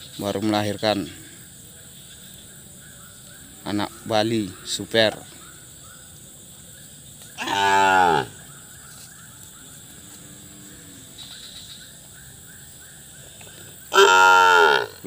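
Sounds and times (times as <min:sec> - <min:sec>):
calf mooing: 0:13.9 - 0:15.0.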